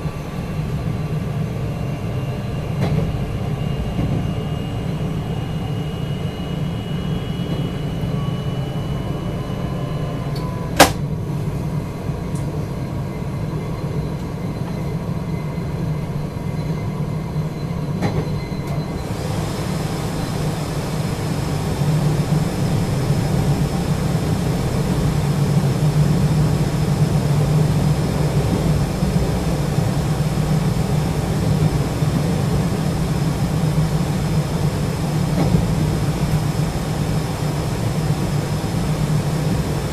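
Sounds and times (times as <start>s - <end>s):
train wheels rumbling on rail: 0.0s - 39.9s
thin high whine: 1.6s - 10.8s.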